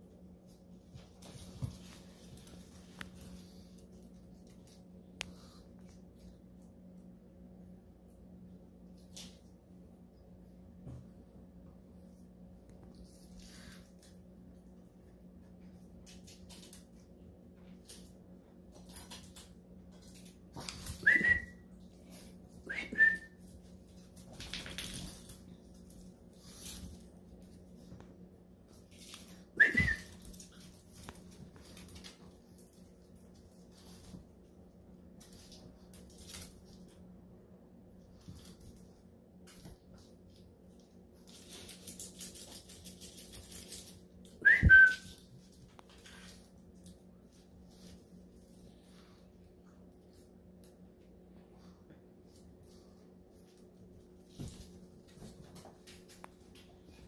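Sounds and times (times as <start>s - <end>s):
dog paws clicking on tile: 0.0s - 7.2s, 12.6s - 37.2s, 37.9s - 51.1s, 52.2s - 57.0s
short loud whistle: 21.0s - 21.6s, 29.6s - 30.1s, 44.4s - 45.0s.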